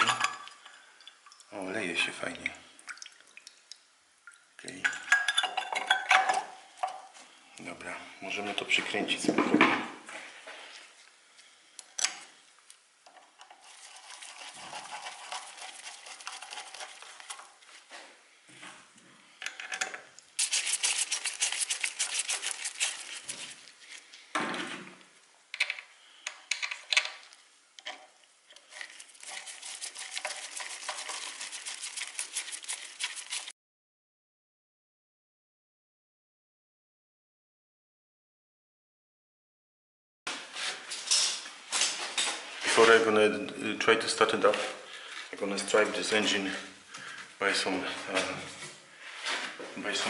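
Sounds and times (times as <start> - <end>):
rapid scratching: 13.6 - 17.4, 20.4 - 23.6, 28.8 - 33.5.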